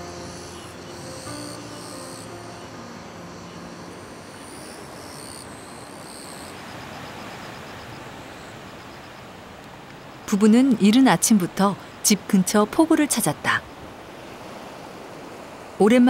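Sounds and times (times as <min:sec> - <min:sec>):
soft background music: 0:00.0 - 0:05.9
steady rushing outdoor noise: 0:00.0 - 0:16.0.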